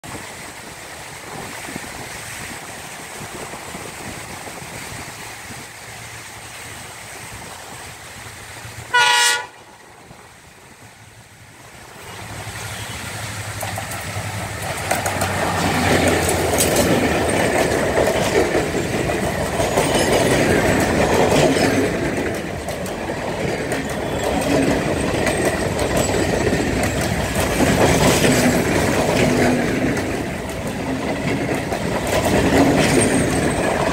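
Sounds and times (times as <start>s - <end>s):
diesel locomotive rumble: 0.0s - 33.9s
train horn blast: 8.9s - 9.7s
train wheels clattering on rails: 11.8s - 33.9s.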